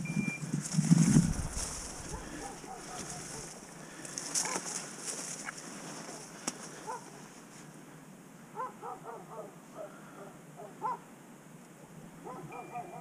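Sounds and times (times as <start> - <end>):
scrub brushing and rustling: 0.5 - 7.7.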